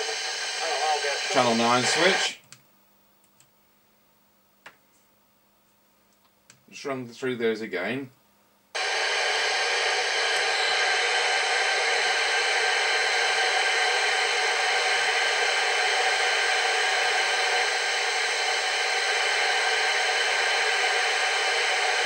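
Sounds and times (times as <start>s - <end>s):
radio receiver hiss: 0.0s - 2.4s, 8.8s - 22.0s.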